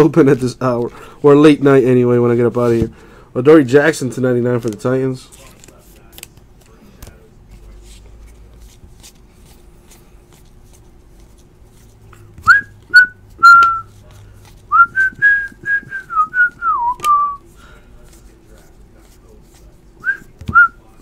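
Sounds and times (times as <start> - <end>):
person whistling tune: 12.4 - 13.9, 14.7 - 17.4, 20.0 - 20.8.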